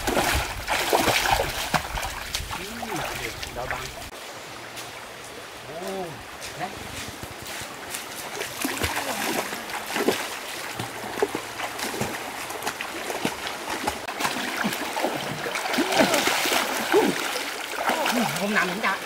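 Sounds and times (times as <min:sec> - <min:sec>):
river rushing: 0:00.0 - 0:19.0
water splashing: 0:00.0 - 0:19.0.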